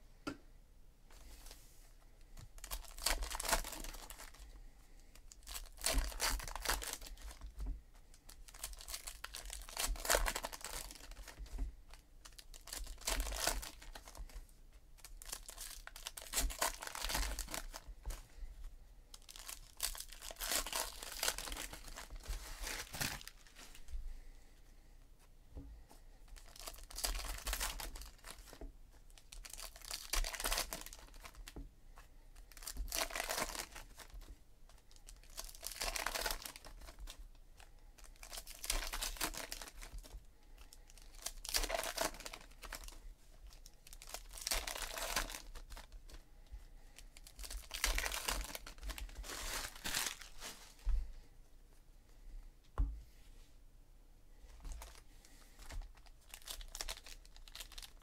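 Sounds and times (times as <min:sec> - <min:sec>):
card wrappers tearing and crinkling: 0:02.6 - 0:04.5, 0:05.2 - 0:07.5, 0:08.1 - 0:14.3, 0:15.0 - 0:18.2, 0:19.2 - 0:23.8, 0:26.3 - 0:31.6, 0:32.4 - 0:37.2, 0:38.0 - 0:40.2, 0:40.8 - 0:46.1, 0:47.0 - 0:50.8, 0:54.7 - 0:58.0.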